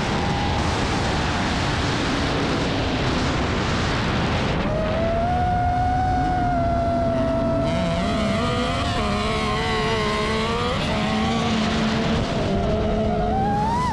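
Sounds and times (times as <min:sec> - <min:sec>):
quadcopter propellers whining: 0:04.7 - 0:13.9
buggy engine: 0:04.8 - 0:13.9.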